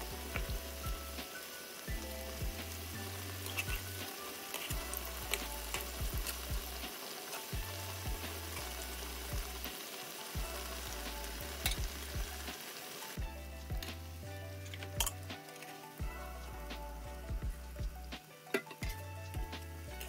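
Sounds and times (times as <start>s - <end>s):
oil sizzling and popping: 0.0s - 20.0s
metal skimmer stirring in oil: 1.9s - 12.5s.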